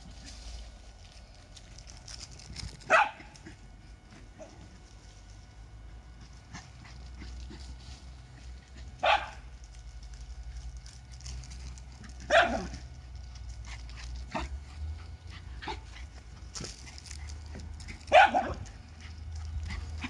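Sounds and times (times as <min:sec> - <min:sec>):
dog barking: 0:02.9 - 0:03.4, 0:09.0 - 0:09.4, 0:12.3 - 0:12.7, 0:18.1 - 0:18.6.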